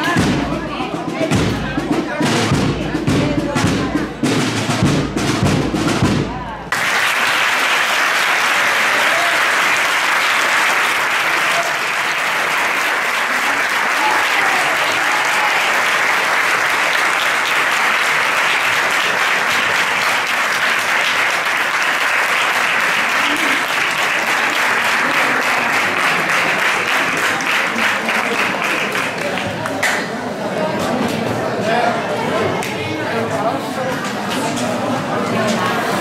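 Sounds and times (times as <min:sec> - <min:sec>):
voices in crowd: 0:00.0 - 0:06.9, 0:08.1 - 0:36.0
crowd applauding: 0:06.7 - 0:30.2.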